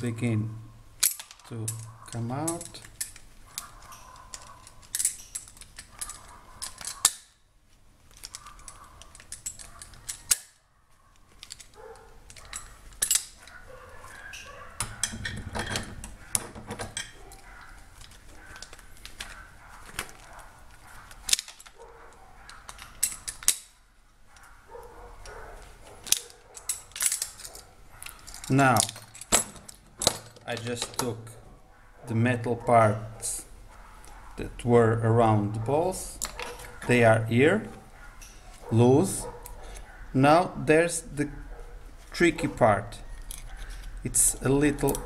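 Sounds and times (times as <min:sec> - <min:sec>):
metal clicks and rattles: 0:01.0 - 0:07.3, 0:08.0 - 0:31.4, 0:35.8 - 0:37.0, 0:42.2 - 0:45.0.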